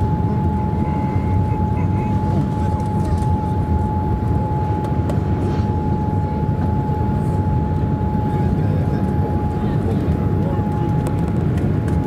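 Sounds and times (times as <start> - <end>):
jet engine roar from cabin: 0.0 - 12.0
thin steady engine whine: 0.0 - 12.0.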